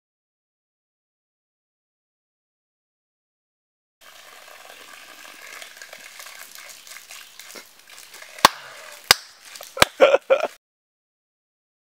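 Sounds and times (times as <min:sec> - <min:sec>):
crackling hiss: 0:04.0 - 0:10.6
sharp cracks: 0:08.3 - 0:10.0.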